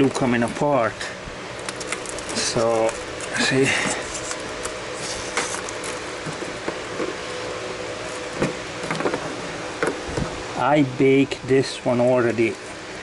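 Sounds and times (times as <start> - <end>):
glue cracking and crackling: 1.6 - 3.4.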